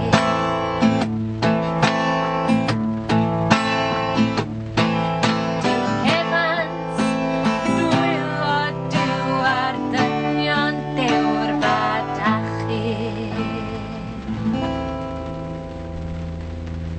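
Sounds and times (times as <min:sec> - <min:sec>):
man and woman singing folk song: 0:00.0 - 0:01.1, 0:05.6 - 0:14.6
acoustic guitar strumming: 0:00.0 - 0:16.9.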